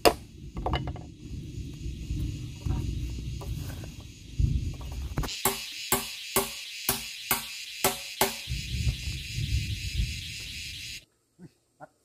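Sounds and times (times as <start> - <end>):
insects chirring: 0.0 - 11.1
low rumble: 0.2 - 5.2.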